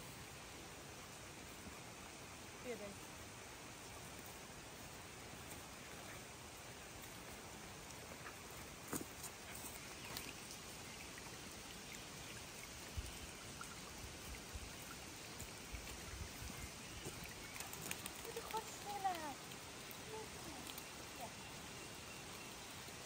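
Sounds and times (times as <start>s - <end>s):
rain falling on leaves: 0.0s - 23.0s
drops ticking: 17.0s - 21.3s.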